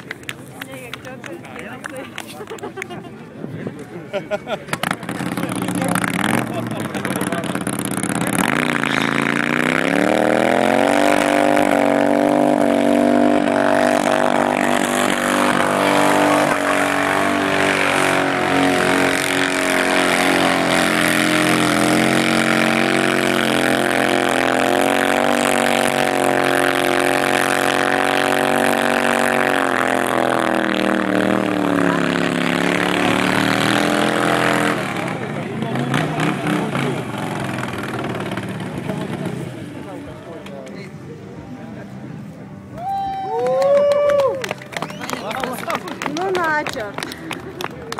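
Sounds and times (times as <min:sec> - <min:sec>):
motorcycle engine revving high: 0:04.7 - 0:40.4.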